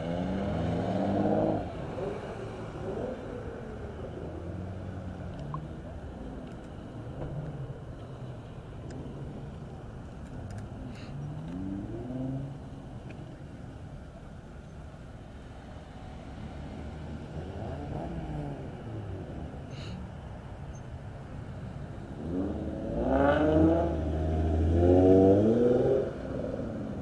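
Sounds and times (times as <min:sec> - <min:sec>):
cars driving slowly past: 0:00.0 - 0:27.0
car engine revving: 0:22.2 - 0:26.7.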